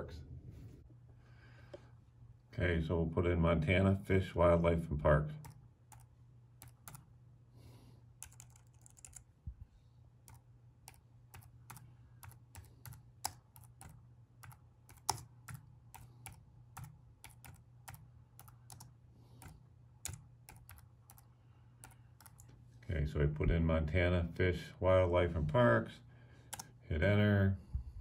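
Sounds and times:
keyboard keys tapping: 0:05.4 - 0:07.1, 0:08.2 - 0:09.3, 0:10.3 - 0:22.5.

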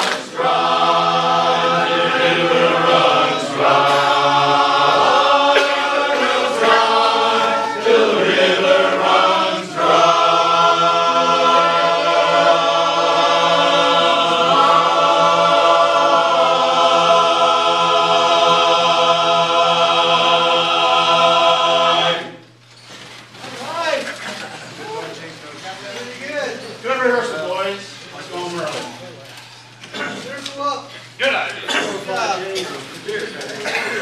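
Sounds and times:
men's chorus singing a cappella: 0:00.0 - 0:22.4.

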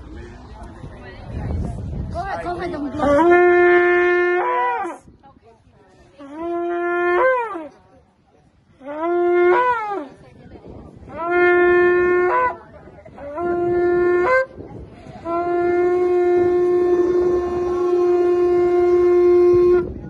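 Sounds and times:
shofar blasts: 0:03.0 - 0:05.0, 0:06.2 - 0:07.7, 0:08.8 - 0:10.1, 0:11.0 - 0:12.6, 0:13.2 - 0:14.6, 0:15.2 - 0:20.0.

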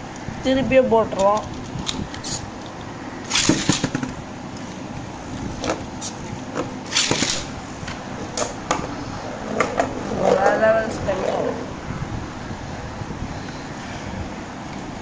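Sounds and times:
spinning tops clacking: 0:03.3 - 0:04.1, 0:06.9 - 0:07.6
spinning tops whirring on plastic: 0:03.3 - 0:04.1, 0:06.9 - 0:07.5.

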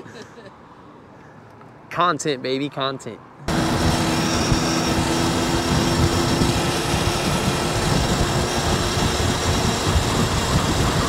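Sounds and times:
wind buffeting microphone: 0:03.5 - 0:11.0.

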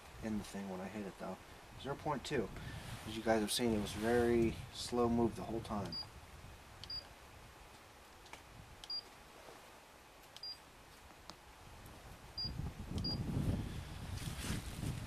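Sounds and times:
clothing rustle and movement: 0:14.1 - 0:15.0.

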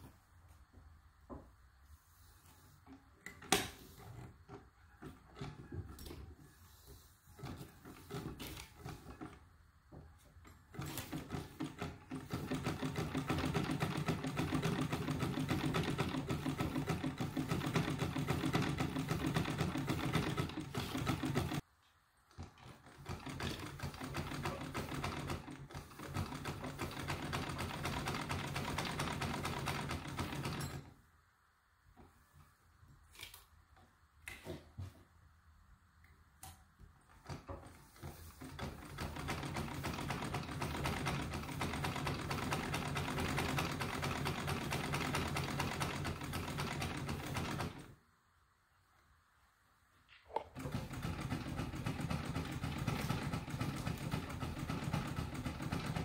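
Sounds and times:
sewing machine clattering: 0:07.4 - 0:09.4, 0:10.7 - 0:21.6, 0:22.3 - 0:30.9, 0:37.1 - 0:47.9, 0:50.3 - 0:56.0.

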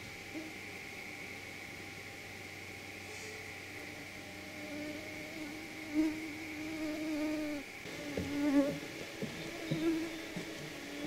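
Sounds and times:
faint steady high drone: 0:00.0 - 0:11.0
flying insect buzzing: 0:02.9 - 0:11.0.

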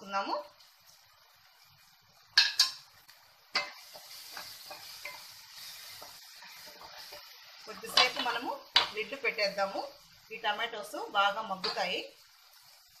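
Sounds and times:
vegetables sizzling in a pan: 0:00.0 - 0:13.0
metal spoon clinking on pan: 0:02.4 - 0:02.8, 0:11.6 - 0:11.9.

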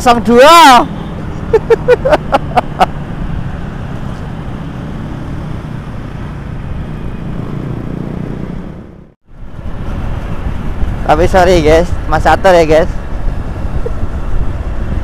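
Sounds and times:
traffic: 0:00.0 - 0:15.0
wind: 0:00.0 - 0:15.0
motorcycle engine riding: 0:00.7 - 0:09.2.

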